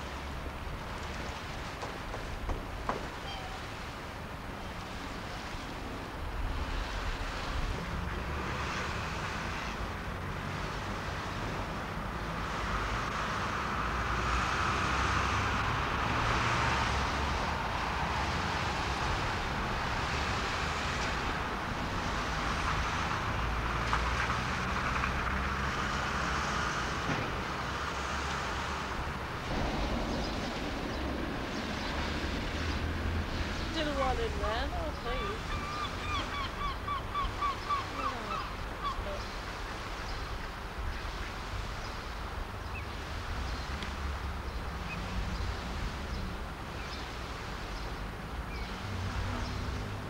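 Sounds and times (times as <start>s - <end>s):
road traffic passing: 0.0s - 50.0s
low rumble: 29.2s - 33.7s.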